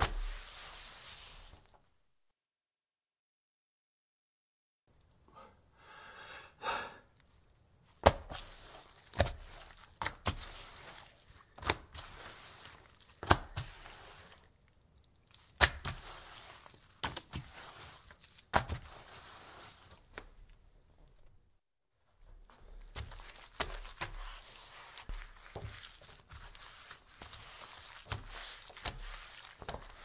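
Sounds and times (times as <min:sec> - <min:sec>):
soft wet sounds: 0:00.0 - 0:01.8, 0:07.0 - 0:21.4, 0:22.1 - 0:30.0
wet wiping rub: 0:00.0 - 0:01.8, 0:07.8 - 0:14.6, 0:15.4 - 0:20.2, 0:22.5 - 0:30.0.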